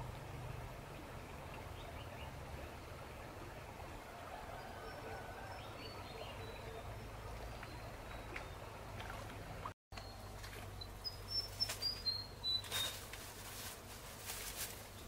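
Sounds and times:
low steady hum: 0.0s - 15.0s
small birds chirping: 10.0s - 13.0s
sharp rustles and knocks: 10.0s - 15.0s.

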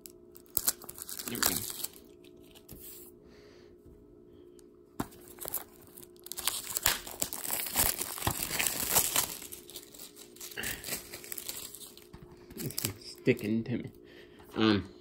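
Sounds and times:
plastic wrap crinkling: 0.0s - 3.0s, 5.0s - 13.5s.

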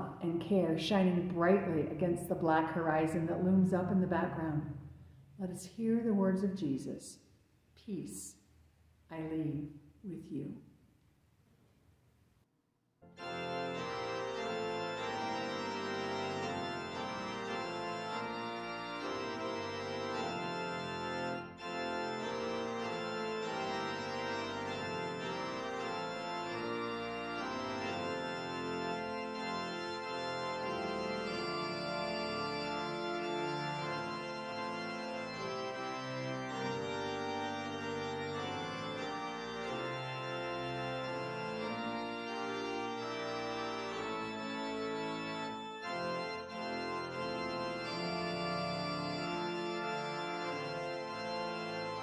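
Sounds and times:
organ playing sustained chords: 13.0s - 52.0s.

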